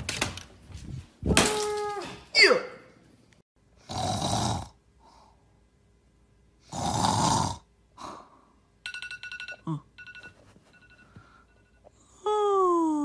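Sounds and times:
loud rasping snores: 0:03.8 - 0:04.8, 0:06.7 - 0:07.7.

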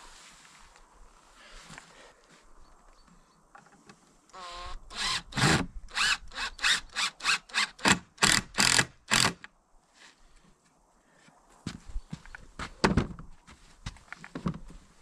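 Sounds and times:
cordless drill whining: 0:04.3 - 0:09.2.

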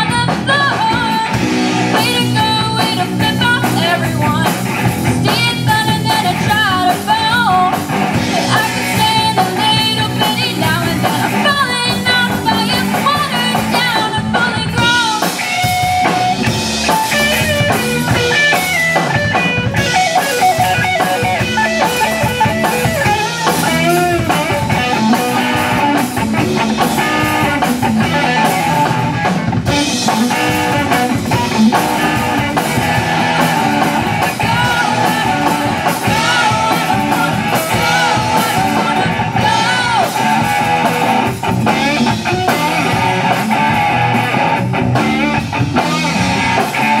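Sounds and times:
girl singing: 0:00.0 - 0:04.6, 0:05.2 - 0:15.4, 0:33.3 - 0:40.3
live rock band playing: 0:00.0 - 0:47.0.

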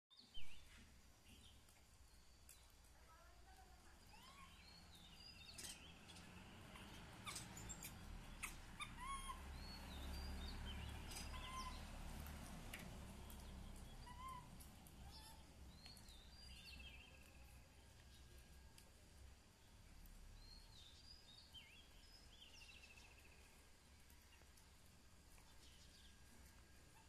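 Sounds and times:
faint birds chirping: 0:00.1 - 0:27.0.

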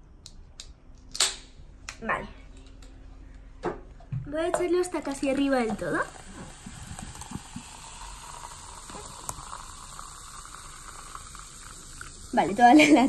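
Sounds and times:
soda fizzing: 0:04.9 - 0:13.0
soda pouring into plastic cup: 0:05.0 - 0:13.0.

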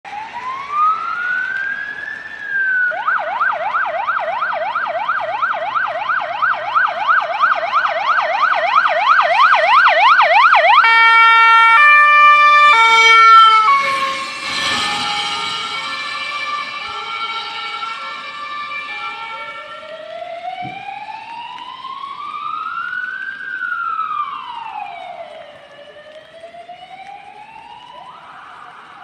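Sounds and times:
fire engine siren wailing: 0:00.1 - 0:29.0
horn-like siren tones: 0:03.2 - 0:21.8
truck rushing past: 0:12.8 - 0:16.9.

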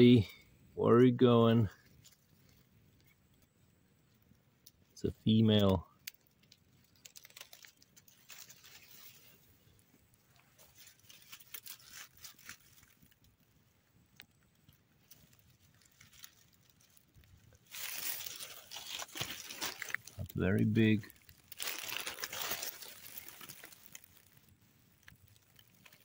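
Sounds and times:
dry leaves crackling and rustling: 0:05.3 - 0:26.0.

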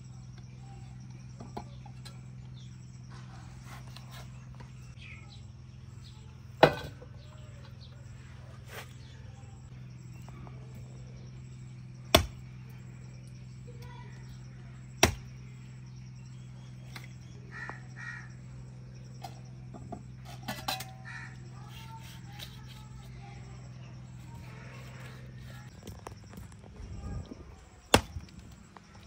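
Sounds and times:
cleaver chopping through bone: 0:12.1 - 0:12.4, 0:15.0 - 0:15.3, 0:27.9 - 0:28.3.

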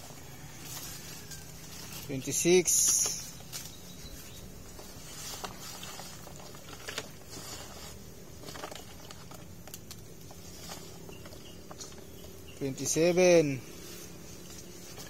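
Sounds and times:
wet fish pattering in plastic: 0:05.3 - 0:07.7.

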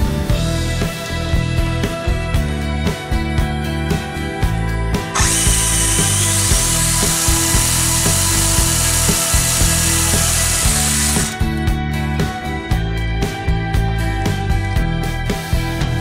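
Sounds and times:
background music: 0:00.0 - 0:16.0
electric motor whirring: 0:05.1 - 0:11.6.

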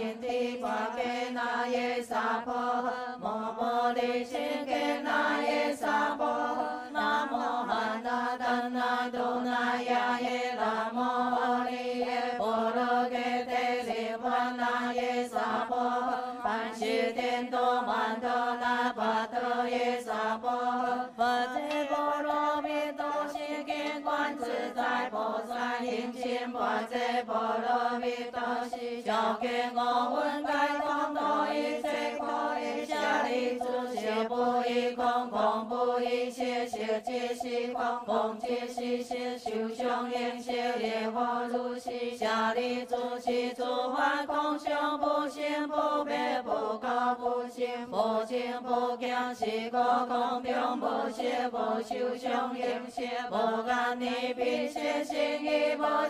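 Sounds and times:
group chanting in unison: 0:00.0 - 0:56.0
light percussive taps: 0:21.6 - 0:47.4, 0:49.0 - 0:56.0.

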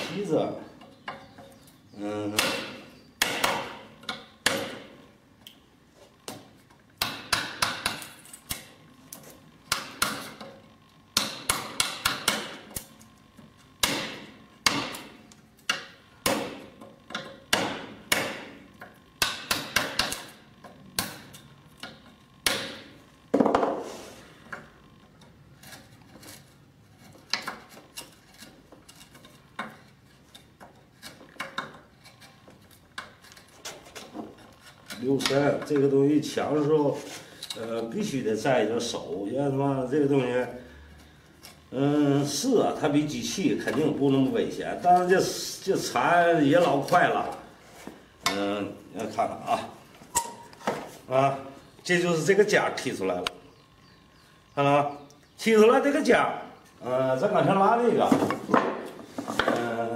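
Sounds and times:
chisel knocking into wood: 0:15.7 - 0:18.6.

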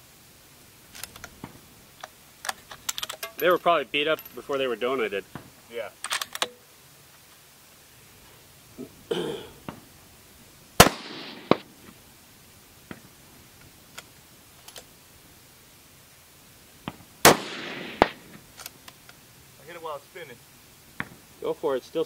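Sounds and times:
rifle shot echoing: 0:10.8 - 0:11.8, 0:17.2 - 0:18.4
faint clicks: 0:18.5 - 0:19.2.

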